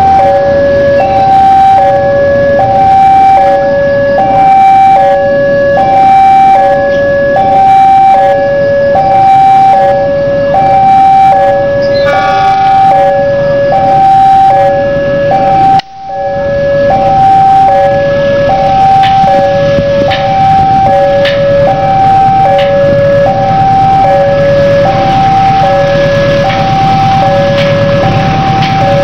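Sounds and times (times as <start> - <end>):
locomotive horn: 0.0 - 29.0
two-tone crossing alarm: 0.0 - 29.0.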